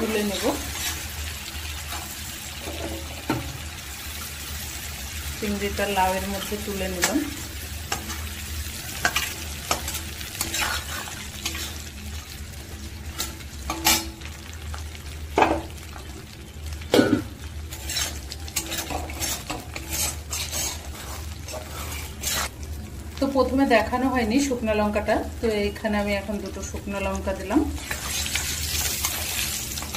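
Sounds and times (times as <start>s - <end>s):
oil sizzling: 0.0s - 29.9s
spatula scraping wok: 6.4s - 11.9s, 17.7s - 22.5s, 27.8s - 29.9s.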